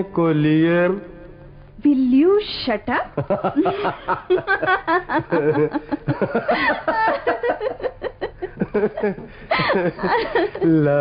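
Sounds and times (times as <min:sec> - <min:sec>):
giggling and chuckling: 0:03.2 - 0:11.0.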